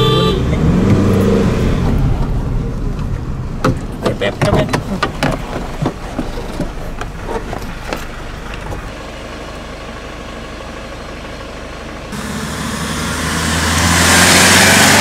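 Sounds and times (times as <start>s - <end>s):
vehicle engine idling: 0.0s - 13.6s
sharp knocks and clicks: 3.0s - 8.9s.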